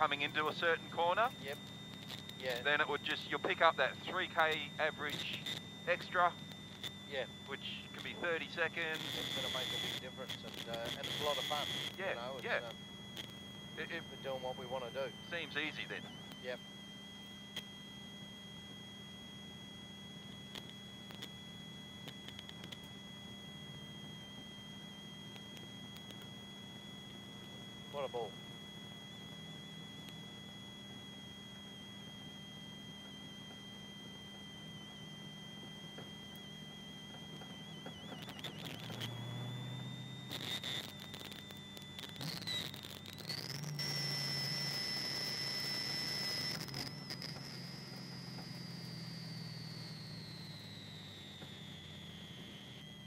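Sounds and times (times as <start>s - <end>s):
high-pitched electrical whine: 0.0s - 53.0s.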